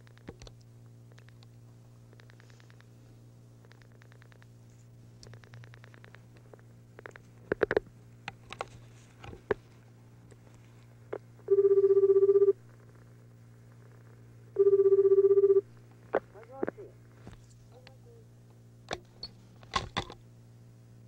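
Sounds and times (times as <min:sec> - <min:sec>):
scattered clicks: 0:00.0 - 0:02.9, 0:03.6 - 0:04.5, 0:05.2 - 0:08.7
telephone ringback tone: 0:11.5 - 0:12.6, 0:14.6 - 0:15.6.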